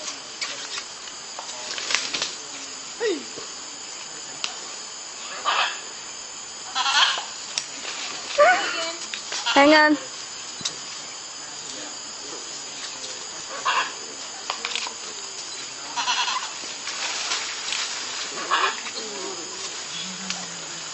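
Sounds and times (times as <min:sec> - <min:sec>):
high-pitched animal cries: 0:06.7 - 0:07.2, 0:09.4 - 0:09.8, 0:16.0 - 0:16.5.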